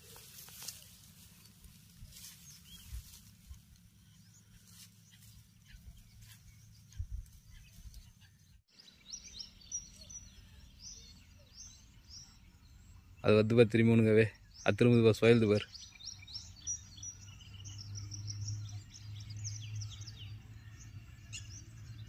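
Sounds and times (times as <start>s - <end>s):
footsteps through grass and brush: 0.0s - 8.1s
small birds chirping: 0.0s - 22.0s.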